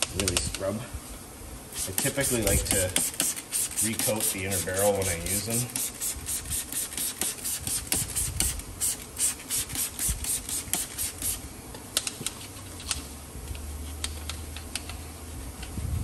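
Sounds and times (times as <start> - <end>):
brush scrubbing wet wheel: 1.8 - 8.2.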